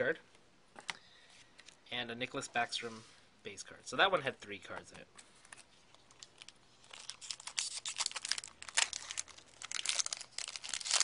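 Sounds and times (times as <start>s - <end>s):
foil wrapper tearing and crinkling: 6.1s - 11.0s.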